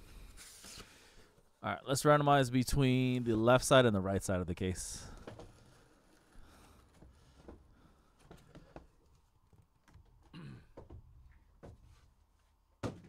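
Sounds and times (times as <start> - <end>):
cardboard rustling: 5.1 - 10.3.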